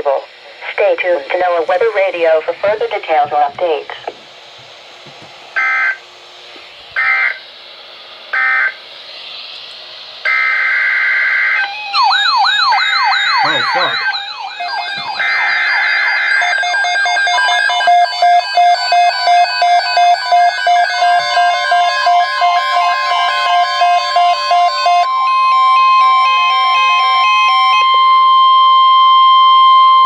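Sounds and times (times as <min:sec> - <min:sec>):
steady beeping: 0:05.5 - 0:06.0, 0:06.9 - 0:07.5, 0:11.6 - 0:30.0
warbling siren alarm: 0:05.5 - 0:06.1, 0:06.8 - 0:30.0
digital alert header bursts: 0:05.6 - 0:06.0, 0:07.0 - 0:07.4, 0:11.6 - 0:27.8.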